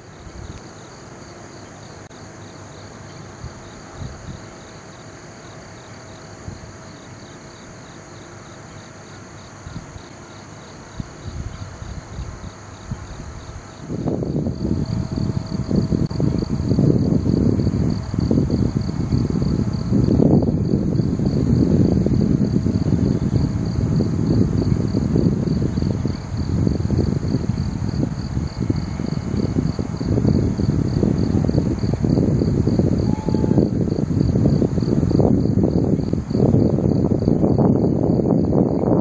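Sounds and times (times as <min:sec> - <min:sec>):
insects chirping trill: 0:00.0 - 0:39.0
low outdoor rumble: 0:09.6 - 0:39.0.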